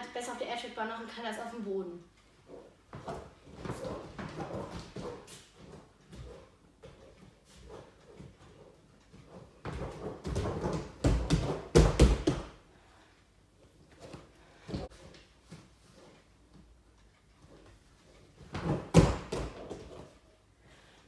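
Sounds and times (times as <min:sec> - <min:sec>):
hands and feet thumping on air mat: 0:09.2 - 0:12.6, 0:18.5 - 0:20.1.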